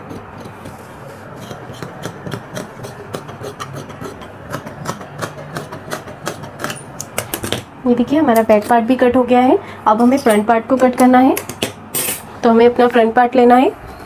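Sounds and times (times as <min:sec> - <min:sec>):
scissors snipping fabric: 0:00.0 - 0:07.2.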